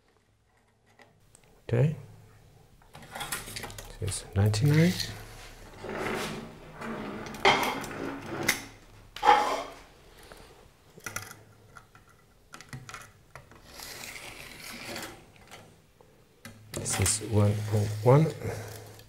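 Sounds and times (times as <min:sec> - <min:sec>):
objects scraping on wooden table: 0:04.7 - 0:10.4, 0:13.5 - 0:15.6, 0:16.8 - 0:19.0.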